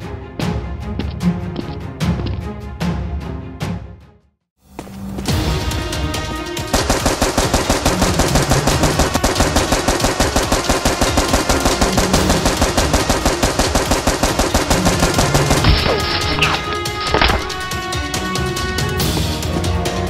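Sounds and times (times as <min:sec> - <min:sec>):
rapid machine-gun fire: 0:06.7 - 0:16.3.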